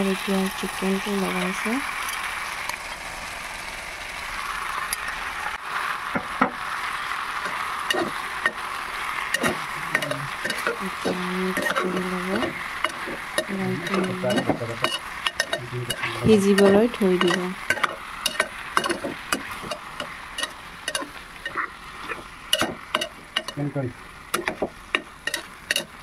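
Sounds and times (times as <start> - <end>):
chicken sizzling in oil: 0.0 - 26.0
spatula scraping and clinking pot: 7.9 - 8.6, 9.3 - 10.8, 11.5 - 23.6, 24.3 - 26.0.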